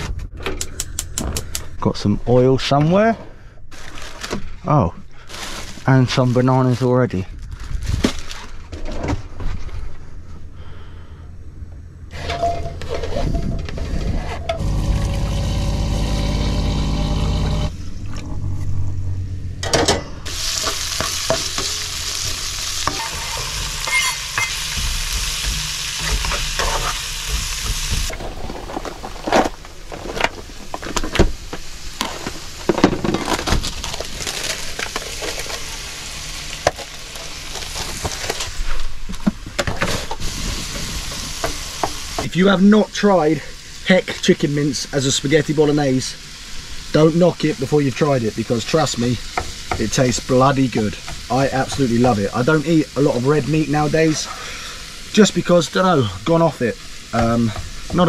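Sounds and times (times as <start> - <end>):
steady hum: 9.2 - 33.0
vegetables sizzling in a pan: 20.3 - 38.6, 39.8 - 58.0.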